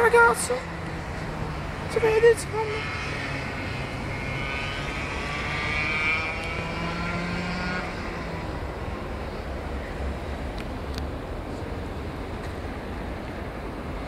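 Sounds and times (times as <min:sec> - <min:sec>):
kart engine buzzing: 0:00.0 - 0:10.5.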